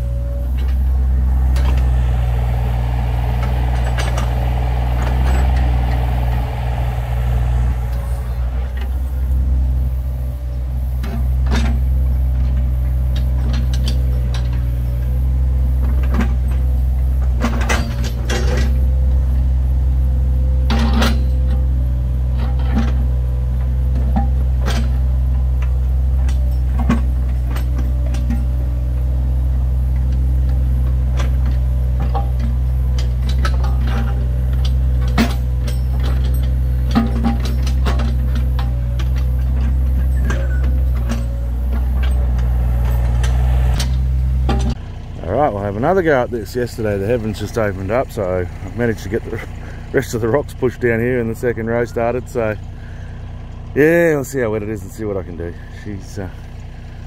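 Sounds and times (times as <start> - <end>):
diesel engine humming: 0.0 - 57.0
sharp knocks and clanks: 31.1 - 44.8.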